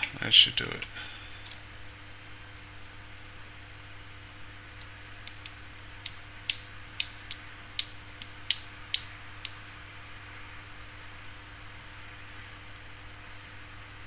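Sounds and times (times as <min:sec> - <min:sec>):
faint steady hum: 0:00.0 - 0:14.0
sharp irregular clicks: 0:04.8 - 0:09.6.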